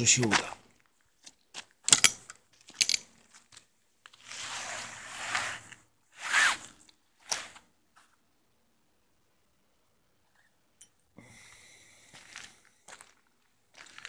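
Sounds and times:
wet net rustling and scraping: 4.0s - 7.6s.

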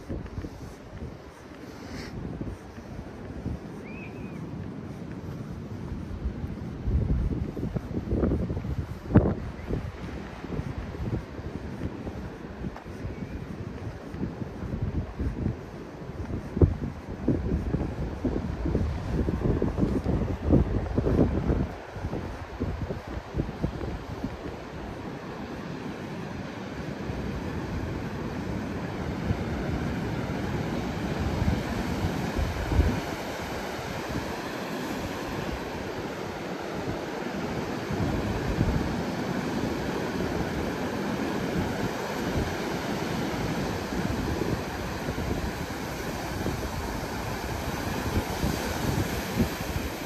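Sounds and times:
wind buffeting microphone: 0.0s - 50.0s
surf rushing: 17.5s - 50.0s.

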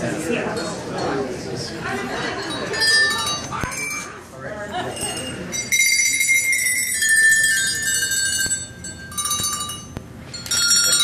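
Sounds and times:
small bells ringing: 0.5s - 11.0s.

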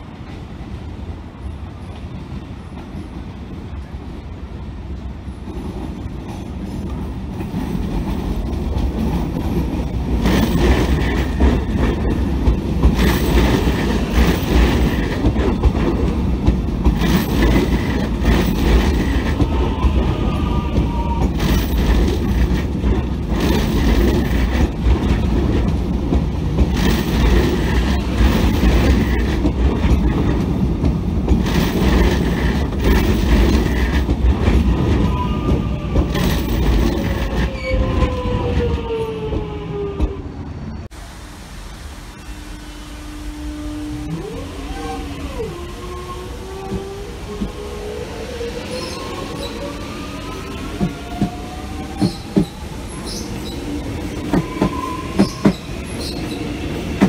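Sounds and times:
train rumbling past: 0.0s - 57.0s
wheels clattering on rails: 5.4s - 40.2s, 50.5s - 57.0s.

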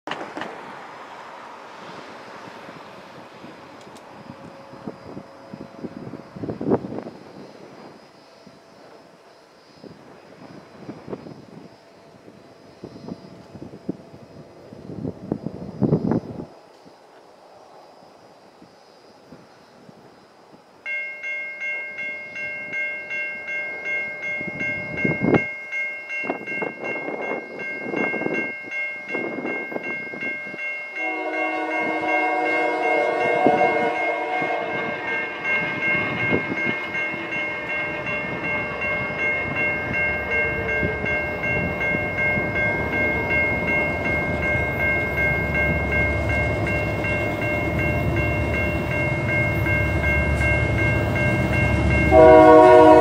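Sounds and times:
train bell ringing: 20.8s - 53.0s
train horn blast: 31.0s - 39.3s, 39.9s - 41.5s, 51.4s - 53.0s
locomotive engine rumble: 31.0s - 53.0s.

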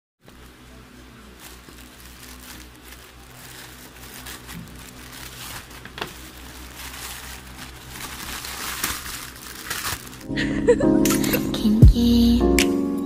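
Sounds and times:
low steady hum: 0.2s - 12.4s
plastic mailer bag crinkling: 0.3s - 10.3s.

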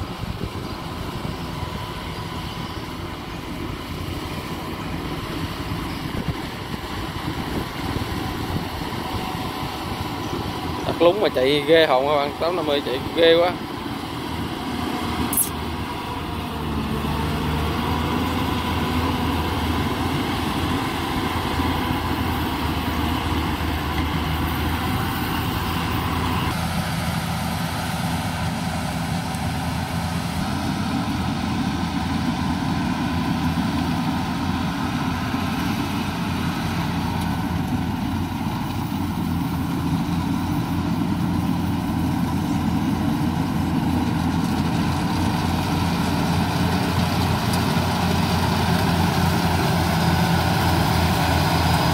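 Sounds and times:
combine harvester diesel engine: 0.0s - 51.9s.

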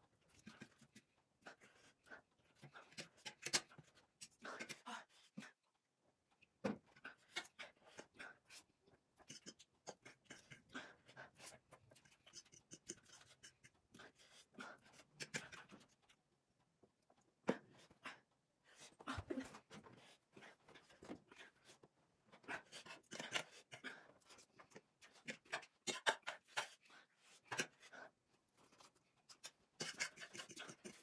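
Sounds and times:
slurping and chewing: 28.6s - 31.0s.

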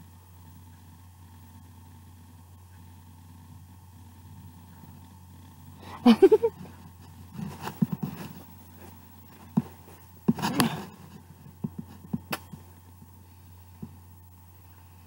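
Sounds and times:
steady low hum: 0.0s - 15.0s
soft knocks and rustles: 7.0s - 12.7s.

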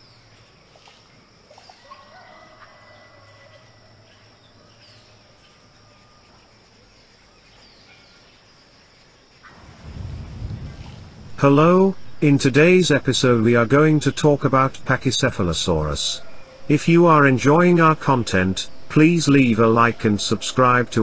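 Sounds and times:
insects: 0.0s - 21.0s
low steady hum: 9.6s - 21.0s.

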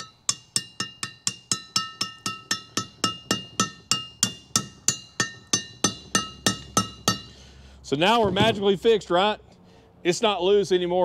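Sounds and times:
hammer striking metal punch: 0.0s - 7.4s.

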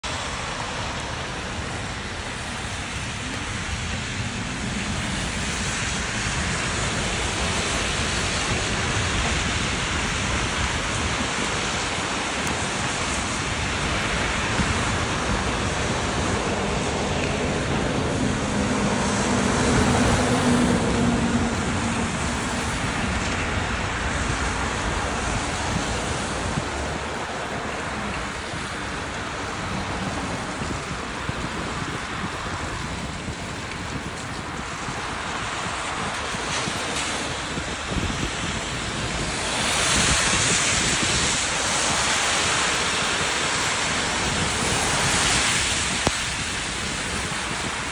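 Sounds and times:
car tyres hissing on wet road: 0.0s - 47.9s
wind on microphone: 0.0s - 47.9s.

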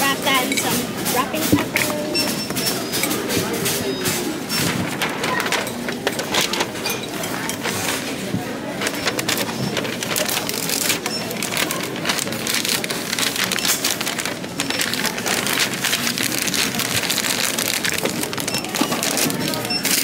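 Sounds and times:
packaging crinkling: 8.8s - 20.0s.

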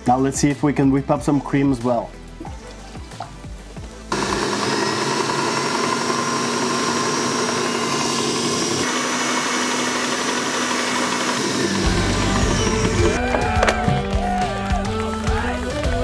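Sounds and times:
stand mixer motor whining: 4.1s - 14.1s.

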